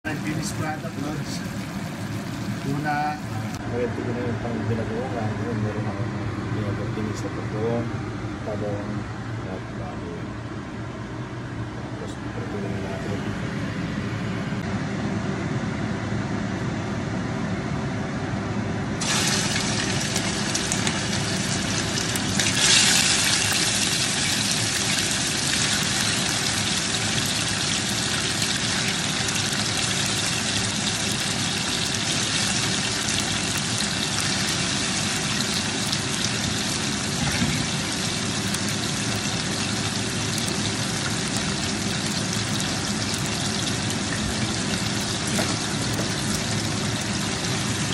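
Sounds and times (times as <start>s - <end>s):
meat sizzling in hot oil: 0.1s - 3.6s, 19.0s - 47.9s.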